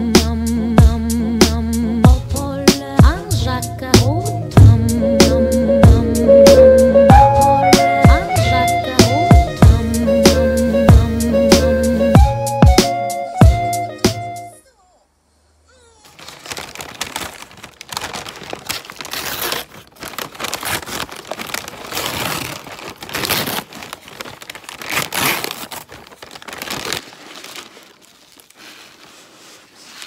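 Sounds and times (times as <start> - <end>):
paper bag crinkling: 16.0 - 30.0.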